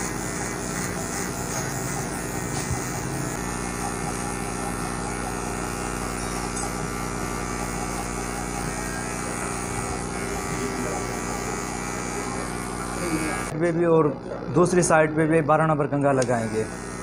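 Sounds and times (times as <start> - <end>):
electric hair clipper buzzing: 0.0 - 17.0.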